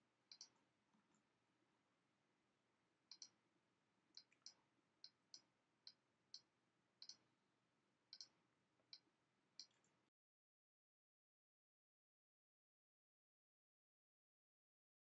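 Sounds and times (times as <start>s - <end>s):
computer mouse clicks: 0.3s - 1.2s, 3.1s - 3.4s, 4.2s - 7.2s, 8.1s - 9.0s, 9.6s - 10.0s.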